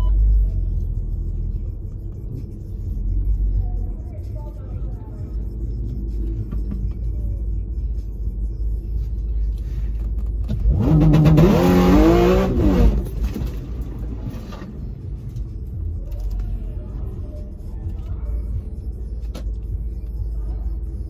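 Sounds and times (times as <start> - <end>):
low engine rumble in car: 0.0 - 21.0
car engine revving hard: 10.5 - 13.4.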